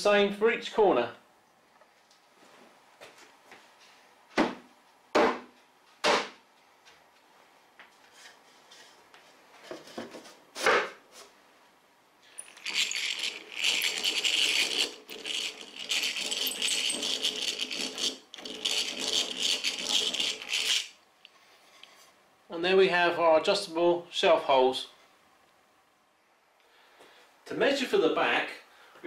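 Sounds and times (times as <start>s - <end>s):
hand drill rasping in wood: 12.4s - 21.0s.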